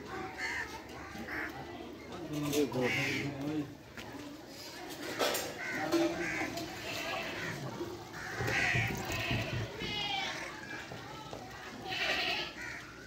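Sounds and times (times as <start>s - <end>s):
faint background voices: 0.0s - 13.0s
crows cawing: 0.2s - 1.6s, 2.7s - 3.4s, 5.2s - 9.5s, 12.1s - 13.0s.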